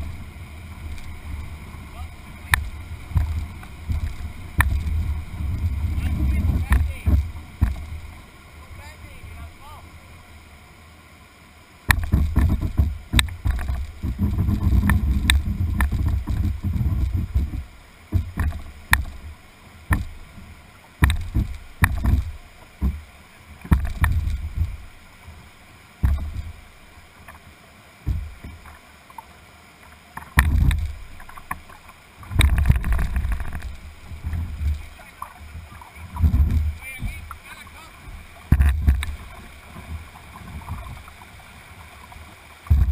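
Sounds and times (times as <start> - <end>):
whitewater rapids rushing: 0.0 - 42.9
thumps and knocks on canoe hull: 2.4 - 8.0, 11.9 - 24.9, 26.0 - 26.6, 28.0 - 28.8, 30.2 - 41.1, 42.6 - 42.9.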